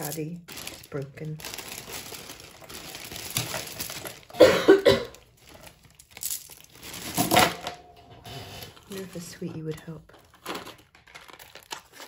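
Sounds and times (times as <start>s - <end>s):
person coughing: 4.3s - 5.2s.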